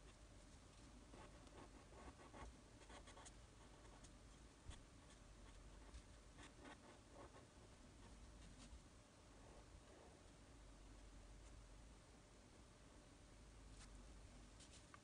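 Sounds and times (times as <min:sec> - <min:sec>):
pen scratching on paper: 0:01.1 - 0:04.1, 0:05.0 - 0:07.5.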